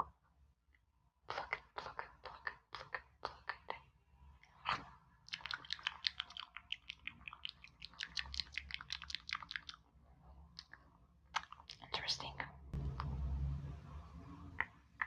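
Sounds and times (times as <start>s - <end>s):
tongue clicks: 4.7s - 9.8s, 11.4s - 12.2s
wet lip smacks: 4.7s - 9.8s, 11.4s - 12.0s.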